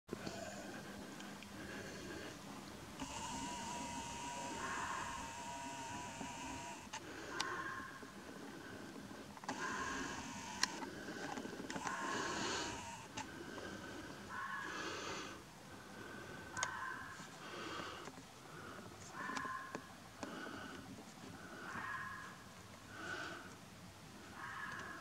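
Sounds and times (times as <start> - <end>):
fox howling: 3.7 - 5.4, 19.1 - 19.8
sharp clicks: 9.4 - 13.3.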